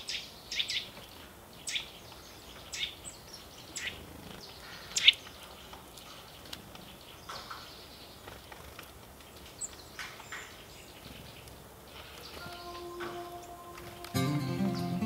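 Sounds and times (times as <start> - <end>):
faint high chirp: 12.3 - 15.0.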